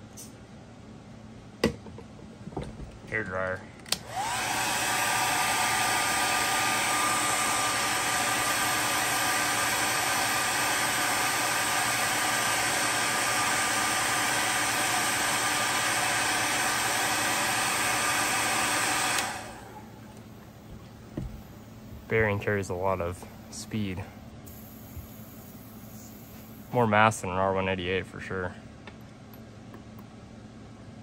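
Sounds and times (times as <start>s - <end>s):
hair dryer running: 3.9s - 20.6s, 24.5s - 26.8s.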